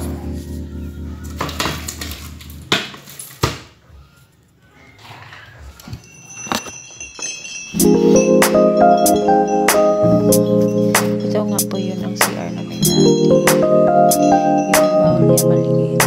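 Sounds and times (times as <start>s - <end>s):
background music: 0.0s - 2.7s, 7.7s - 16.0s.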